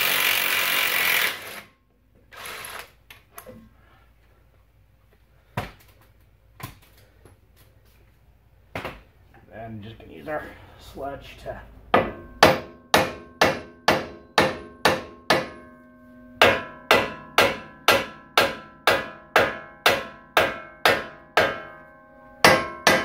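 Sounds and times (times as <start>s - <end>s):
sledgehammer striking metal: 11.9s - 23.0s.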